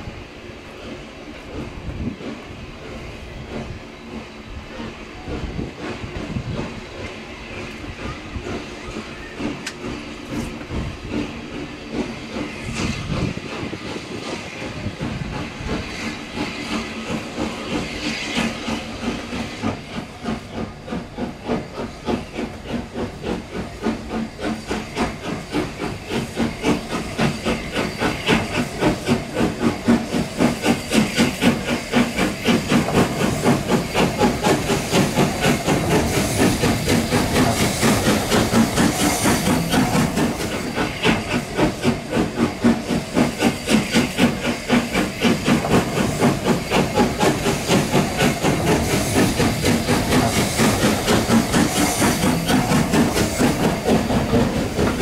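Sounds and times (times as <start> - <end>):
steam hissing: 0.0 - 55.0
steam locomotive exhaust beats: 0.0 - 55.0.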